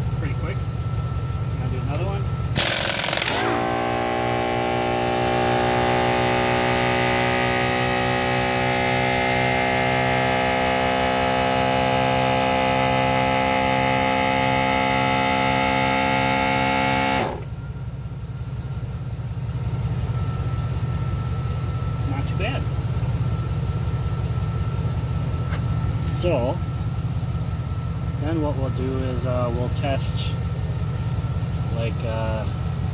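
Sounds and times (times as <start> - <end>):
air compressor running: 0.8 - 17.7.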